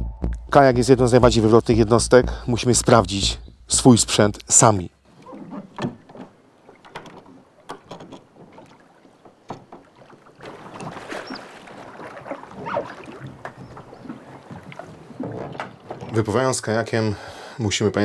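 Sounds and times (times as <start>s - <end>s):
water rushing: 5.1s - 17.2s
clicks of kayak fittings: 5.5s - 9.9s.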